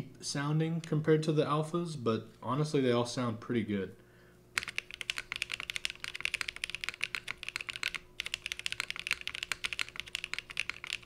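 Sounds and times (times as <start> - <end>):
fast typing on mechanical keyboard: 4.6 - 11.0.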